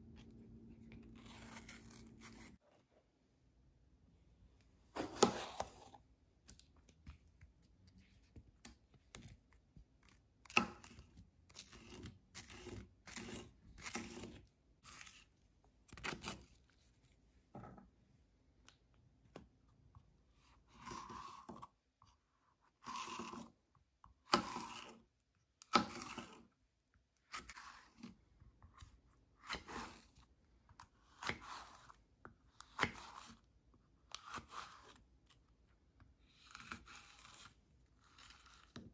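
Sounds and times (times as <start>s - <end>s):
knife slicing bell pepper: 1.0s - 2.6s, 5.0s - 5.9s, 10.0s - 15.2s, 25.7s - 26.5s, 28.8s - 30.2s, 31.0s - 32.0s, 32.6s - 33.4s, 34.1s - 35.0s.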